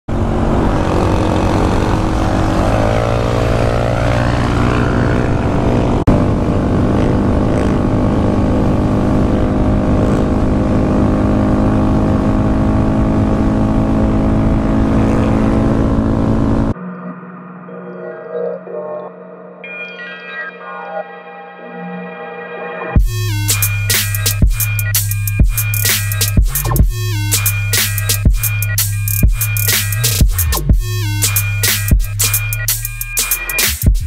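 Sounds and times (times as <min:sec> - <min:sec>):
motorcycle engine running: 0:00.1 - 0:16.8.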